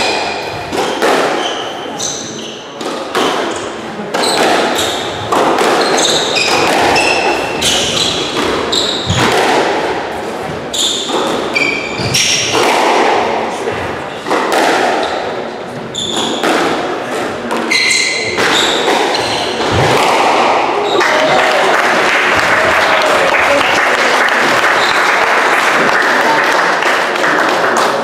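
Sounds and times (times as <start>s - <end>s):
squash ball struck by rackets: 0.0s - 1.6s, 2.8s - 15.3s, 16.0s - 20.8s
shoes squeaking on wooden floor: 3.5s - 9.3s, 10.4s - 12.5s, 15.0s - 16.5s, 17.6s - 19.8s.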